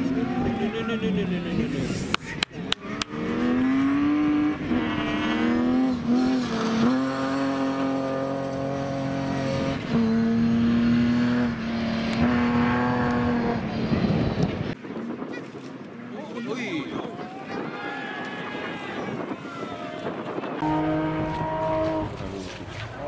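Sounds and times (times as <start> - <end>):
car engine at high revs: 2.6 - 14.8.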